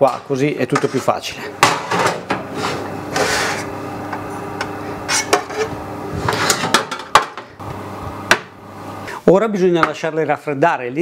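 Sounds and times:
metal pans scraping and clinking: 0:00.1 - 0:03.7, 0:05.0 - 0:07.4.

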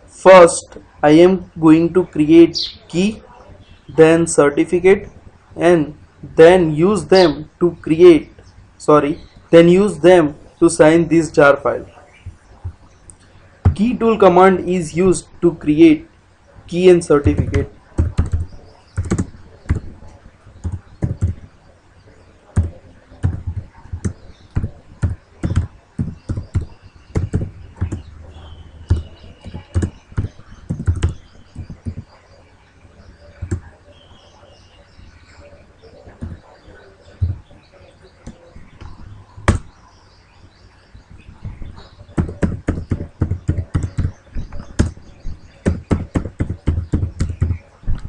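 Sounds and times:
typing on a keyboard: 0:17.2 - 0:20.0, 0:20.6 - 0:21.5, 0:22.6 - 0:28.1, 0:28.9 - 0:32.0, 0:45.6 - 0:47.6.

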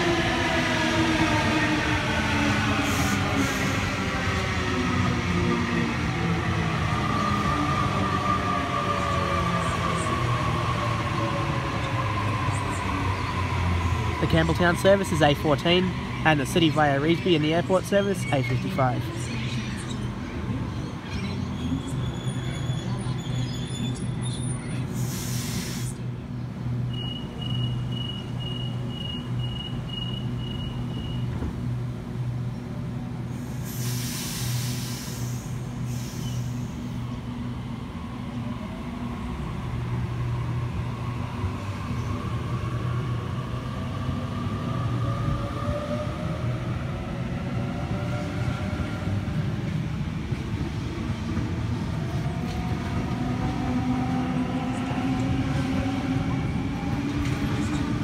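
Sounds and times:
electric train hum: 0:00.0 - 0:58.0
air hiss: 0:25.0 - 0:26.0, 0:33.4 - 0:36.9.

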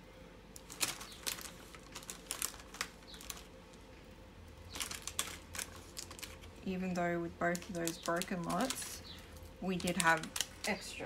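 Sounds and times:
plastic bags crinkling: 0:00.5 - 0:11.0.

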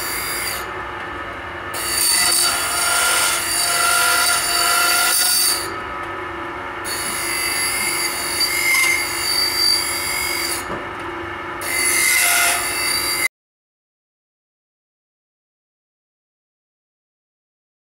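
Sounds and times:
grinding wheel on saw blade: 0:00.0 - 0:00.7, 0:01.7 - 0:05.8, 0:06.8 - 0:10.7.

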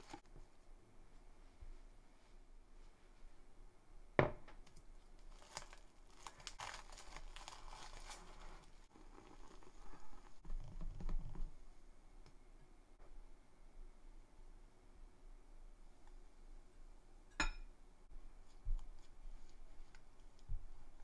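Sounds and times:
cling film crinkling: 0:05.2 - 0:10.4
whisk stirring sticky marshmallow: 0:06.6 - 0:10.5.

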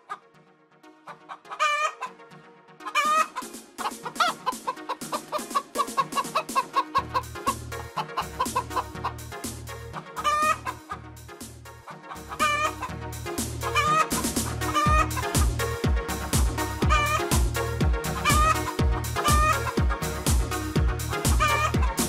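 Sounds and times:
background music: 0:00.0 - 0:22.0
hen squawking and clucking: 0:01.1 - 0:02.2, 0:02.8 - 0:09.3, 0:09.9 - 0:11.0, 0:11.9 - 0:13.0, 0:13.6 - 0:17.4, 0:18.0 - 0:20.0, 0:21.1 - 0:22.0
bass beat: 0:05.9 - 0:11.7, 0:12.4 - 0:22.0.

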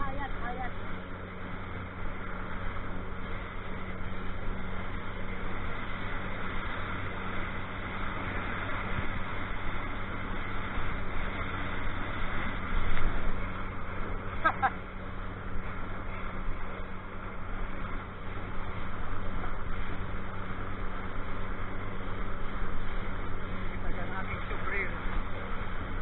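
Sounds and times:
boat engine drone: 0:00.0 - 0:26.0
rush of wind and water: 0:00.0 - 0:26.0.

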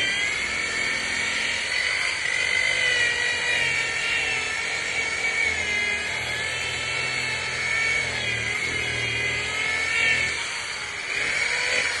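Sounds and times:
electric polisher motor whine: 0:00.0 - 0:12.0.

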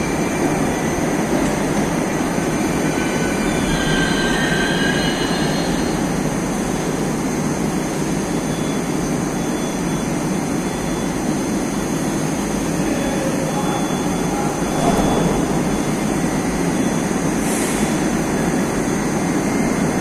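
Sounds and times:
train braking to a stop: 0:00.0 - 0:20.0
faint high squeal: 0:02.4 - 0:07.0.

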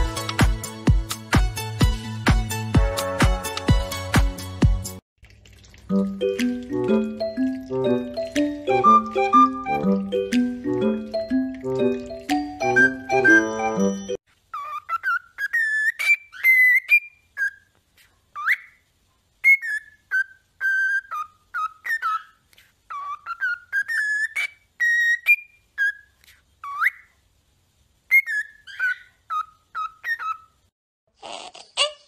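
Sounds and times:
cockatiel whistling: 0:08.6 - 0:10.1, 0:12.6 - 0:14.0, 0:14.6 - 0:17.6, 0:19.4 - 0:22.3, 0:22.9 - 0:27.1, 0:28.1 - 0:30.5.

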